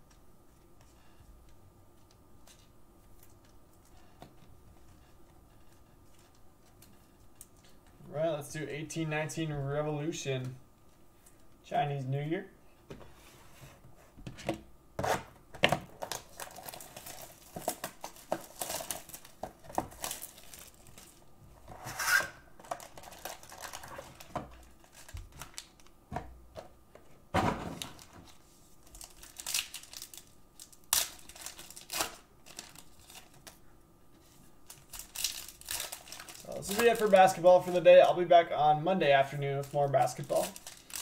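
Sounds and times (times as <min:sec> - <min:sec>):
foil packs crinkling: 0:15.9 - 0:21.3, 0:22.6 - 0:26.0, 0:27.8 - 0:33.6, 0:34.6 - 0:38.4, 0:39.0 - 0:41.0.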